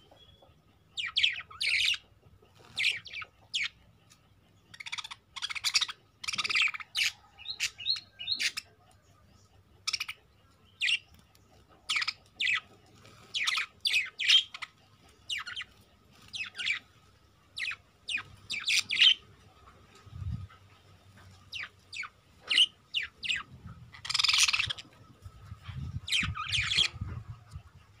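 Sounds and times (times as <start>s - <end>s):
budgerigars chirping: 0.0s - 8.7s, 9.8s - 10.2s, 10.8s - 11.2s, 11.9s - 16.9s, 17.5s - 28.0s.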